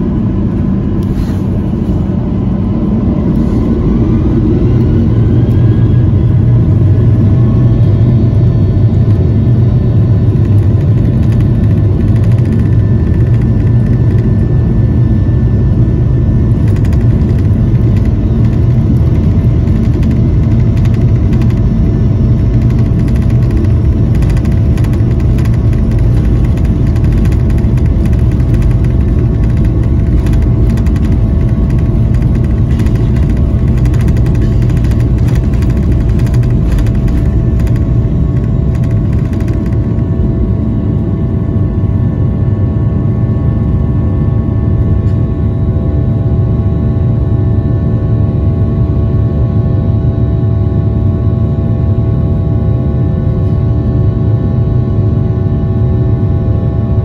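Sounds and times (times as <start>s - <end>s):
jet engines rumbling and whining: 0.0s - 57.0s
light cabin rattles: 22.4s - 40.2s.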